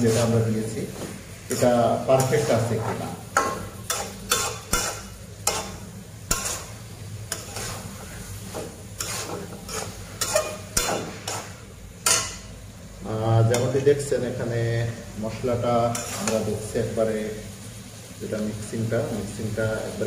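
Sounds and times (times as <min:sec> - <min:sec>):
metal spatula scraping in a wok: 0:00.0 - 0:12.5, 0:15.9 - 0:16.8
light frying sizzle: 0:00.0 - 0:20.0.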